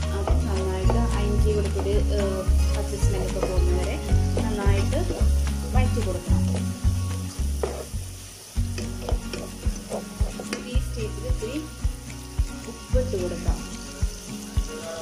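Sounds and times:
onions sizzling in oil: 0:00.0 - 0:15.0
wooden spatula scraping pan: 0:07.6 - 0:08.0.

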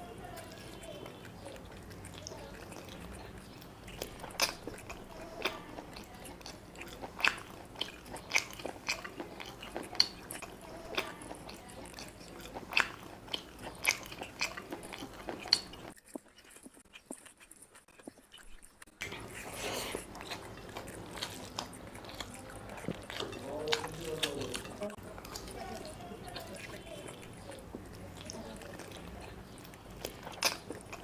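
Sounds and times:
close chewing: 0:00.0 - 0:31.0
mouth smacks and clicks: 0:12.0 - 0:25.6, 0:26.4 - 0:31.0.

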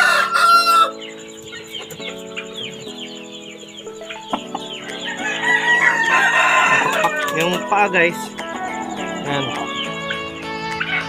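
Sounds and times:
rooster crowing: 0:00.0 - 0:01.3, 0:04.6 - 0:10.2
chicks peeping: 0:00.0 - 0:11.0.

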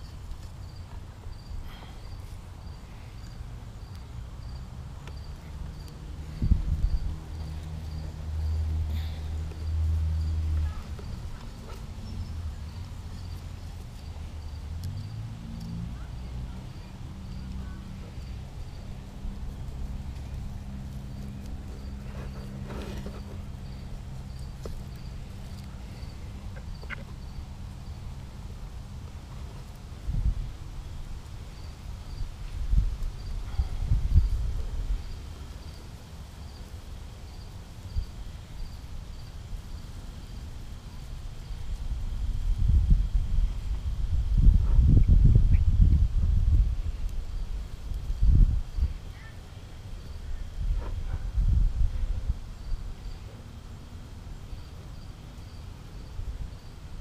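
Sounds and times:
cricket chirping: 0:00.0 - 0:46.1, 0:46.9 - 0:57.0
faint clicks and rustles: 0:17.4 - 0:30.1.

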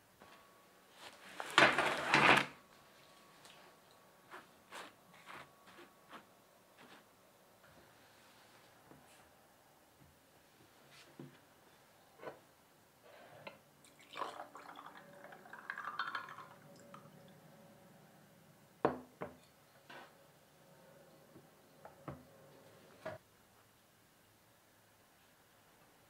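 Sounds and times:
liquid pouring and splashing: 0:13.9 - 0:16.7
ice clinking: 0:13.9 - 0:17.2.

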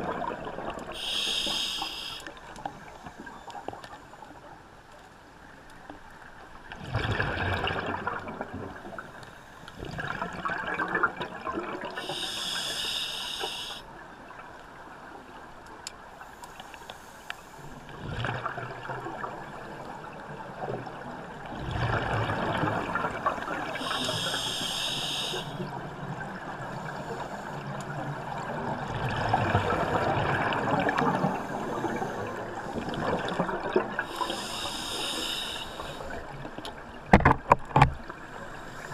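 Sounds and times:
exhaled air bubbling underwater: 0:00.0 - 0:03.9, 0:06.7 - 0:14.5, 0:17.7 - 0:37.1
breath hissing through regulator: 0:01.0 - 0:02.4, 0:12.0 - 0:13.8, 0:23.8 - 0:25.7, 0:34.0 - 0:36.2.

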